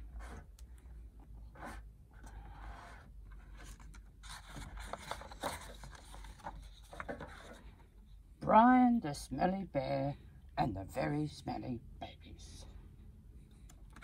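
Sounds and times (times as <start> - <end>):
book pages rustling: 1.5 - 7.9.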